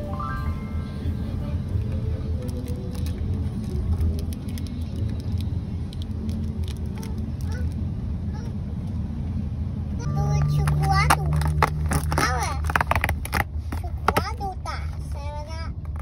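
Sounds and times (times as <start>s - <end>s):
car interior rumble: 0.8s - 16.0s
foil wrapper crinkling: 2.4s - 7.2s.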